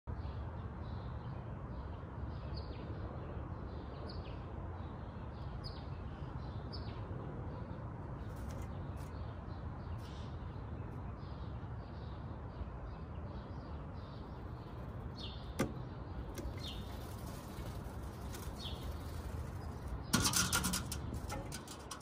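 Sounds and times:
small birds chirping: 0.1s - 22.0s
bird wings fluttering: 16.4s - 20.6s.

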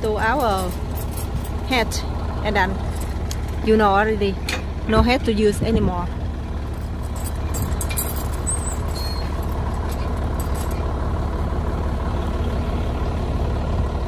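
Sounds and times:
truck engine idling: 0.0s - 14.0s
light metallic clinks: 6.7s - 10.9s.

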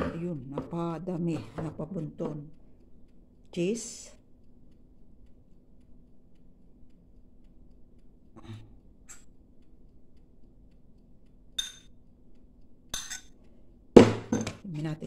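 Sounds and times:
faint room hum: 0.0s - 15.0s
metal spoon clinking ceramic bowl: 11.6s - 11.9s, 13.0s - 13.4s.

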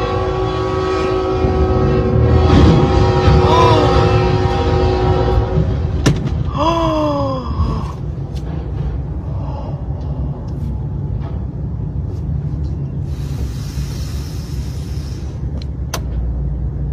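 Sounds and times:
train horn: 0.0s - 6.0s
low rumble: 0.0s - 16.9s
person gasping exclamation: 3.4s - 4.0s, 6.5s - 8.1s.

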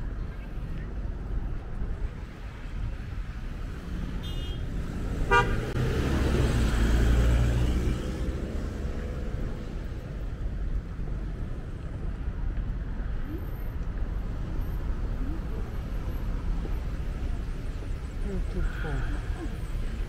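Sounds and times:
city street traffic: 0.0s - 20.0s
car horn toot: 4.2s - 4.6s, 5.3s - 5.7s
car passing close by: 4.9s - 10.0s.

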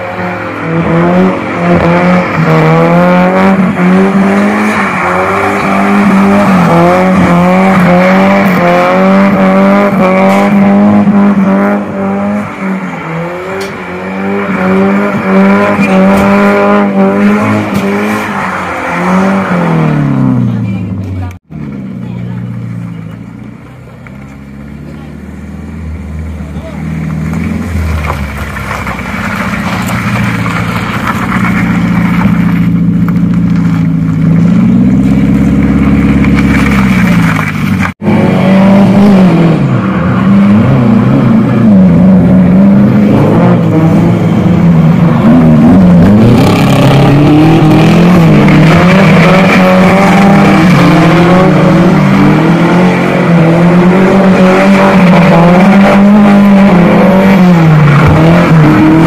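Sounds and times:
car engine revving hard: 0.0s - 20.5s, 34.2s - 59.0s.

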